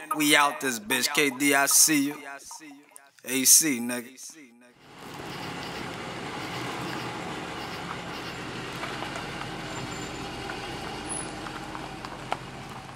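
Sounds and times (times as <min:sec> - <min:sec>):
car engine idling: 0:07.3 - 0:12.9.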